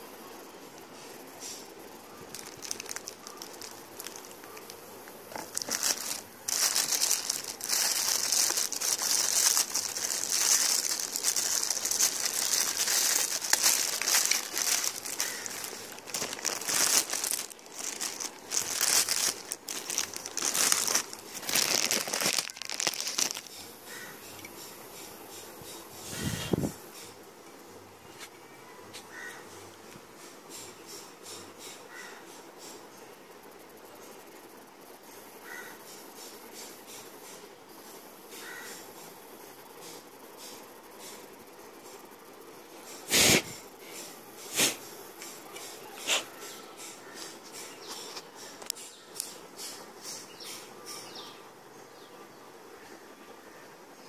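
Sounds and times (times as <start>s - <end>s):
plastic bag crinkling: 2.2s - 23.6s.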